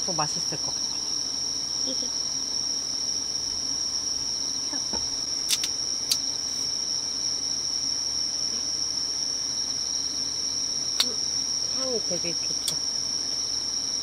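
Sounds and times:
crickets chirring: 0.0 - 14.0
sharp clicks: 5.5 - 6.2.

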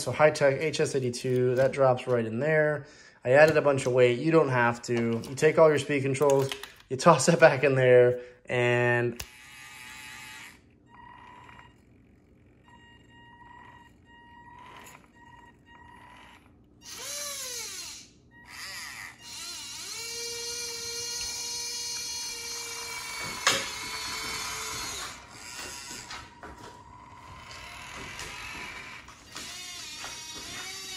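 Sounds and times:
small electric motor whining: 9.2 - 11.8, 15.7 - 30.9.

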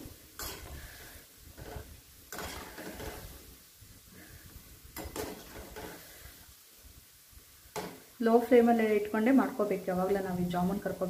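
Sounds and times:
frying in hot oil sizzle: 0.0 - 11.0
metal spoon scraping pan: 0.4 - 3.4, 5.0 - 6.3.

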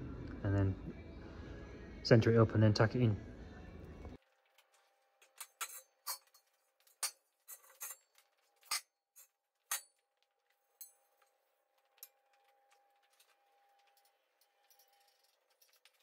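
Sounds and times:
metal wheel rims clinking: 4.6 - 16.0.

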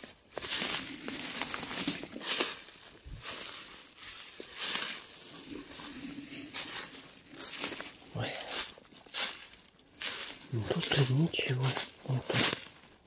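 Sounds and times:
footsteps crunching dry leaves: 0.0 - 13.0.

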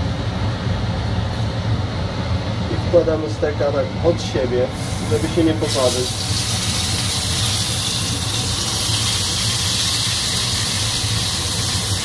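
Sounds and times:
fan humming: 0.0 - 12.0
steak sizzling in a frying pan: 4.8 - 12.0.

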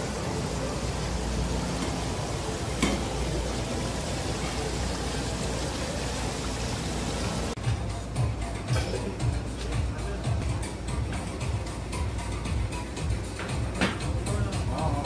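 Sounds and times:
water circulating in tanks: 0.0 - 8.4.

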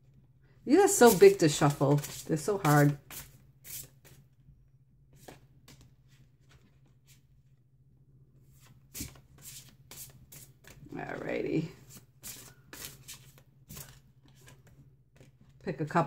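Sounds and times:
cards being shuffled: 0.9 - 4.2, 5.2 - 7.2, 8.6 - 15.6.

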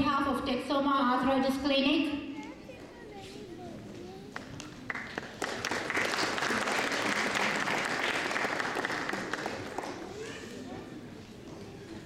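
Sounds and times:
audience applause: 4.4 - 10.3.

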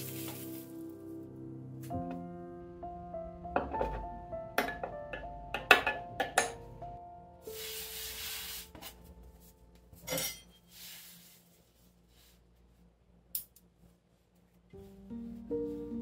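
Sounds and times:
hand brushing flour on stone: 7.5 - 9.1.

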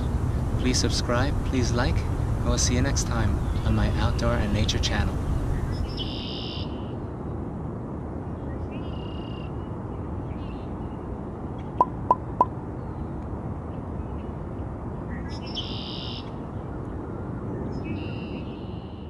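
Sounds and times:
low rushing background: 0.0 - 6.0.

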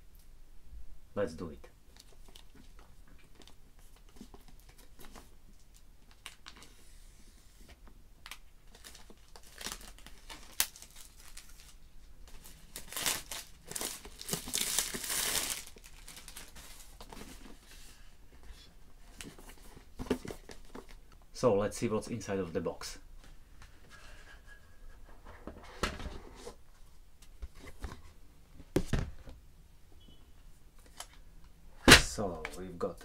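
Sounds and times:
plastic wrapping tearing and crinkling: 8.2 - 17.0.

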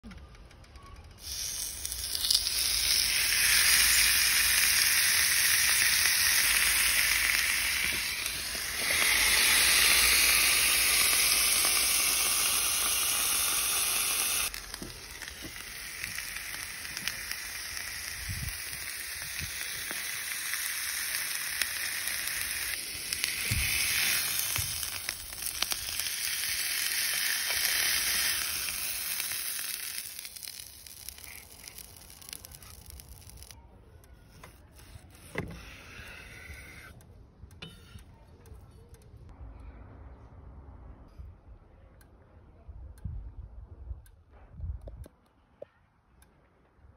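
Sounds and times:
steak sizzling on grill: 1.2 - 33.6.

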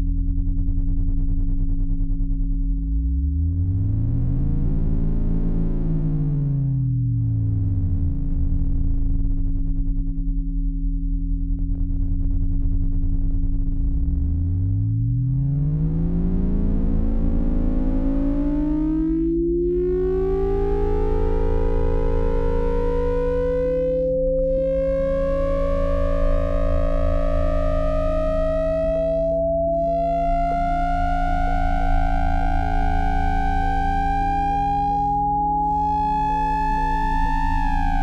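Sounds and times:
low pulsing bass: 0.0 - 38.0
held drone tones: 14.0 - 38.0
tone gliding upward in pitch: 15.0 - 38.0.

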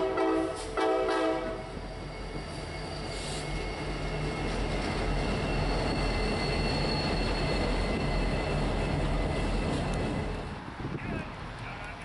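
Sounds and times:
diesel locomotive engines rumbling: 0.0 - 12.0
steel wheels on rails: 1.6 - 10.6.

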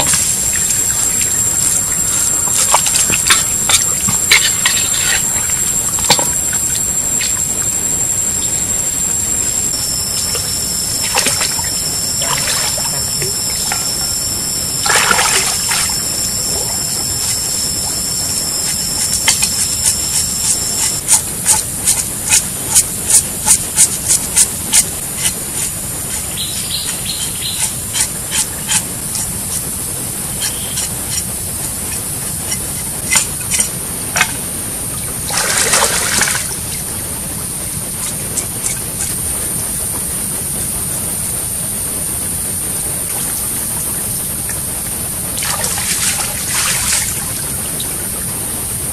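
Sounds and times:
trickling stream water: 0.0 - 40.0, 42.7 - 48.5
steady high hiss: 0.0 - 48.9
blade scraping scaly skin: 18.5 - 29.6, 30.3 - 33.7.

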